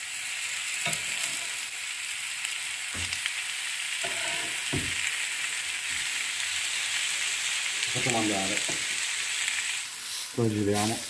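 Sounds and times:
food sizzling on a griddle: 0:00.0 - 0:11.0
metal spatula knocking on pan: 0:04.0 - 0:05.0.

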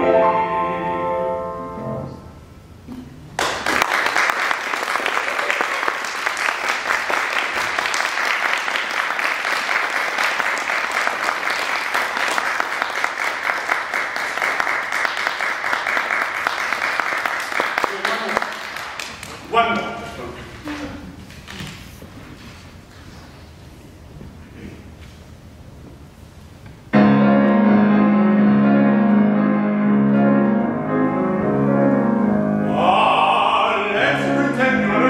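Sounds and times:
audience applauding: 0:03.4 - 0:20.0
grand piano chord: 0:26.9 - 0:35.0.

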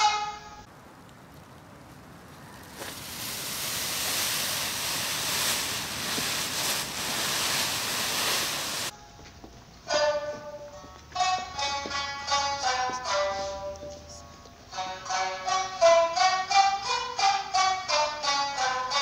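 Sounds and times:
steady hissing rush: 0:02.4 - 0:08.9.

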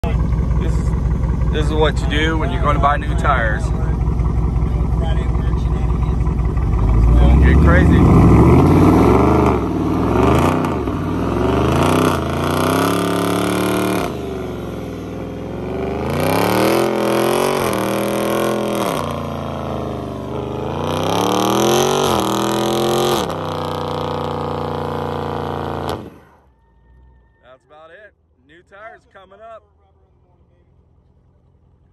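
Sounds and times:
car engine revving: 0:00.0 - 0:26.5
tyres spinning on asphalt: 0:00.0 - 0:27.5.

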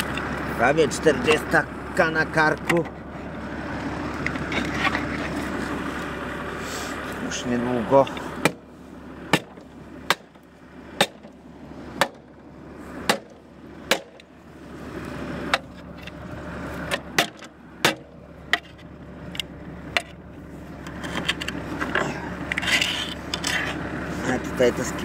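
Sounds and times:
tractor engine running: 0:00.0 - 0:25.0
sharp knocks: 0:09.3 - 0:10.4, 0:12.0 - 0:12.3, 0:13.1 - 0:14.3, 0:16.9 - 0:18.7.

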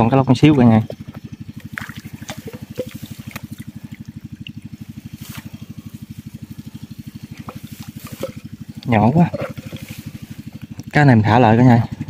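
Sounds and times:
small engine idling: 0:00.0 - 0:12.0
water dripping and clicking: 0:00.9 - 0:04.8.

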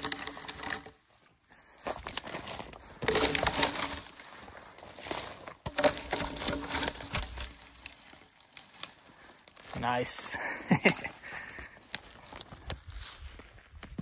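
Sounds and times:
twigs crackling and crunching: 0:00.0 - 0:14.0
footsteps through brush: 0:00.1 - 0:14.0.

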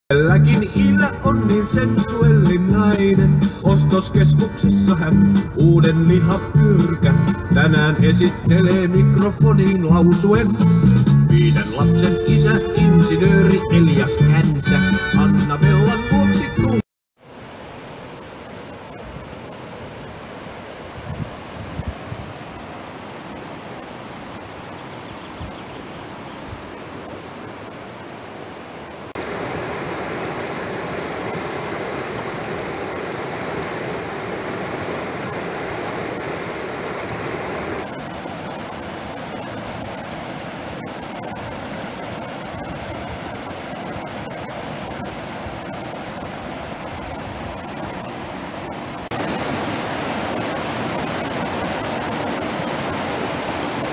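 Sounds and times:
river rapids rushing over rocks: 0:25.8 - 0:53.9.

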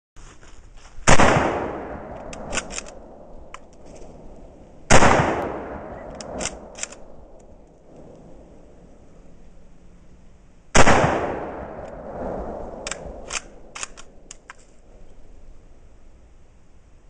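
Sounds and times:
rifle shots echoing: 0:01.1 - 0:07.6, 0:10.7 - 0:14.5
metallic rifle bolt clacks: 0:02.1 - 0:04.0, 0:06.0 - 0:07.8, 0:12.8 - 0:14.8.

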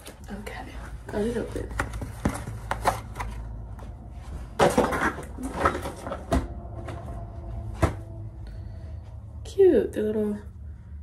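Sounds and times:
cardboard rustling and clicking: 0:01.5 - 0:04.0, 0:04.6 - 0:07.1.

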